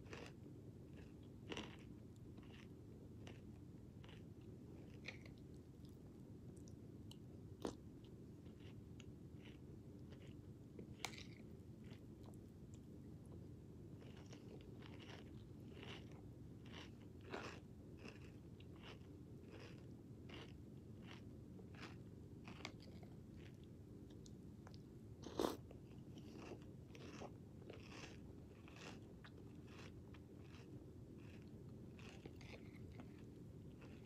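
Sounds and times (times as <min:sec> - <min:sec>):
faint cereal crunches: 0:00.0 - 0:05.6, 0:14.0 - 0:34.0.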